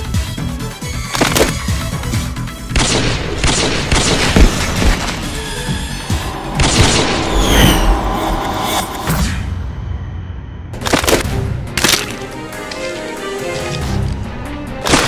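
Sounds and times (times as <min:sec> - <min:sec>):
low drone: 0:04.5 - 0:11.0
heavy booming hits: 0:06.0 - 0:09.8.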